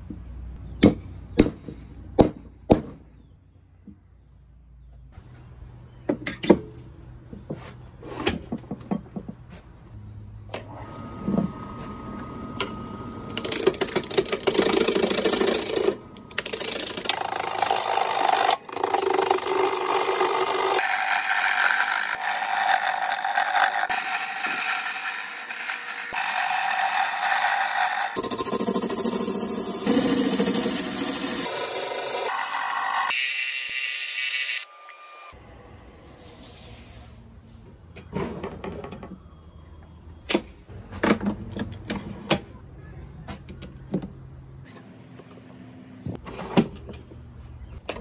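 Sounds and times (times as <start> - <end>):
wood lathe turning wood: 13.3 - 34.7.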